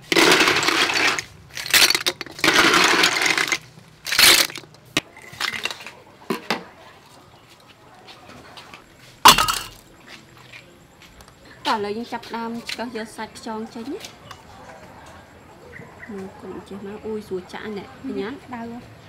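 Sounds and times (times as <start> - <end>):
shells clattering in metal colander: 0.0 - 5.8, 9.3 - 9.8.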